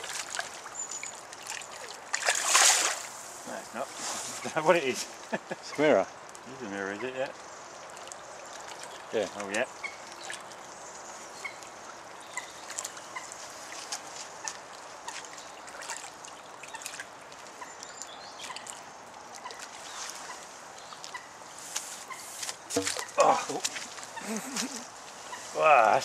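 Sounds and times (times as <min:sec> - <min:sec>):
fish splashing at surface: 0:01.4 - 0:03.1
steady hiss: 0:02.8 - 0:07.7.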